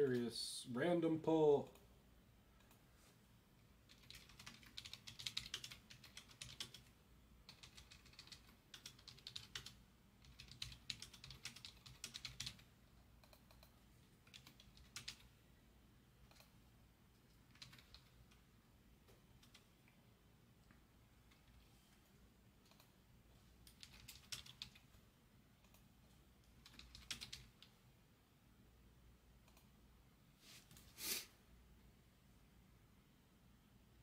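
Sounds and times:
faint typing on keyboard: 0:02.5 - 0:02.9, 0:03.6 - 0:15.4, 0:16.2 - 0:27.8, 0:29.3 - 0:29.9.

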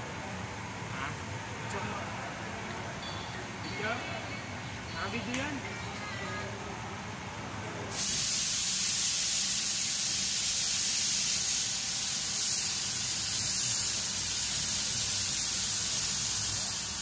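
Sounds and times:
air hiss: 0:07.9 - 0:17.0.

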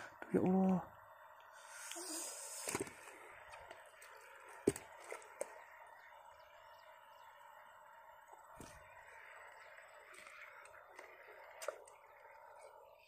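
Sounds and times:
bird chirps: 0:05.5 - 0:08.0.

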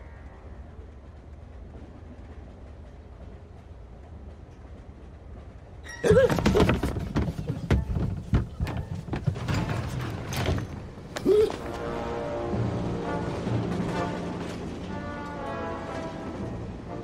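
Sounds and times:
train carriage rumble: 0:00.0 - 0:17.0
knocks thumps and rattles at a door: 0:06.1 - 0:10.7.

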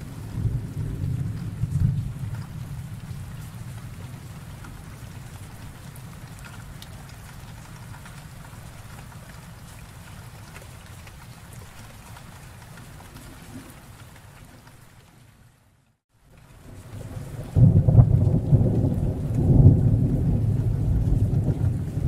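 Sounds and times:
thunder rolling: 0:00.0 - 0:05.8, 0:16.8 - 0:22.0
steady rain falling: 0:00.0 - 0:22.0.

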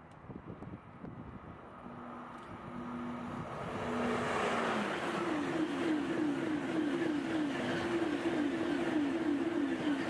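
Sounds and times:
high-speed train passing: 0:00.0 - 0:10.0.

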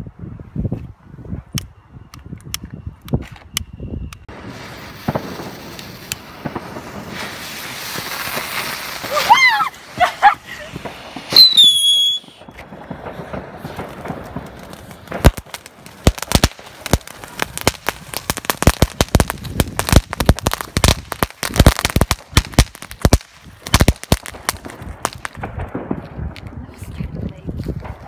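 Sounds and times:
firework crackling pops: 0:02.2 - 0:28.0
firework whistle: 0:03.4 - 0:13.1.

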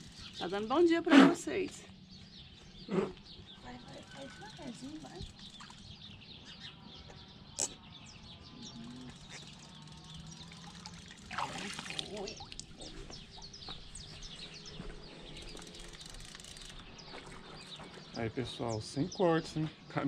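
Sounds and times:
small birds chirping: 0:00.0 - 0:20.0
water splashing: 0:10.3 - 0:13.6.

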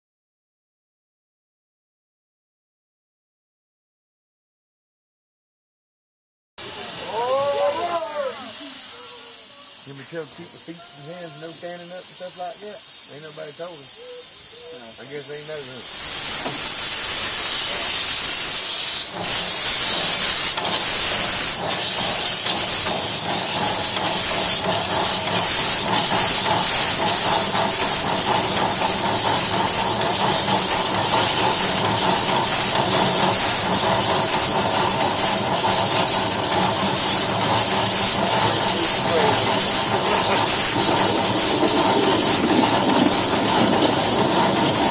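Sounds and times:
steam hissing: 0:06.6 - 0:44.9
steam locomotive chuffing: 0:06.6 - 0:44.9.

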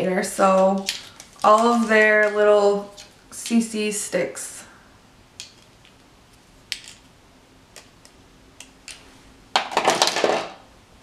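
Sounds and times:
plastic sticks clicking: 0:00.5 - 0:03.6, 0:07.7 - 0:09.0.

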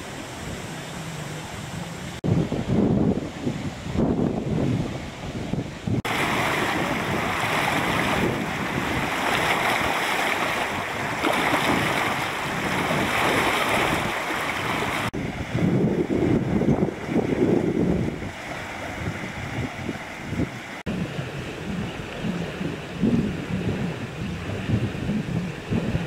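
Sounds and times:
water rushing over weir: 0:00.0 - 0:26.0
wind on microphone: 0:00.0 - 0:26.0
water gushing from culvert: 0:06.0 - 0:26.0.

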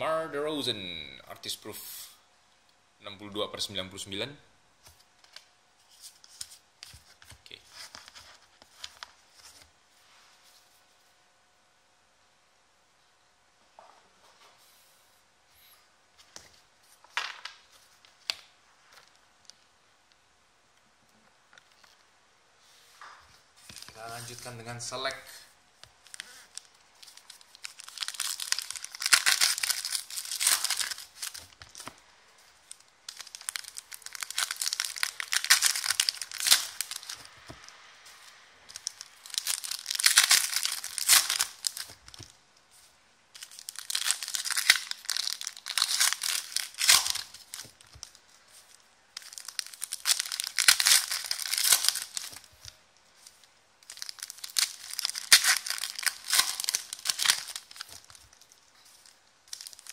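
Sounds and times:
foil packs tearing and crinkling: 0:26.0 - 0:31.9, 0:32.7 - 0:37.3, 0:38.7 - 0:42.3, 0:43.4 - 0:59.9.

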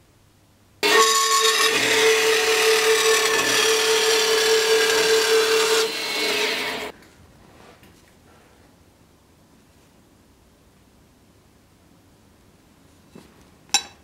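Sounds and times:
bandsaw cutting metal: 0:00.8 - 0:06.9.

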